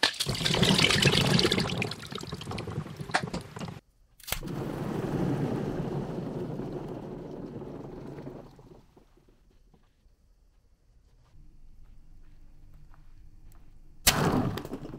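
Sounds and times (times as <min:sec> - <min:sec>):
water and beads splashing into bowl: 0:00.0 - 0:03.6.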